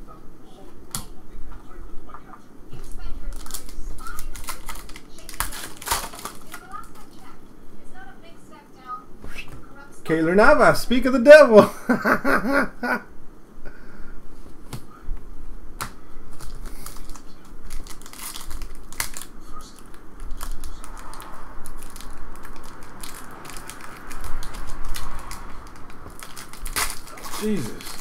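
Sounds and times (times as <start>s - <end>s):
foil wrapper crinkling and tearing: 3.2s - 7.2s, 16.3s - 28.0s.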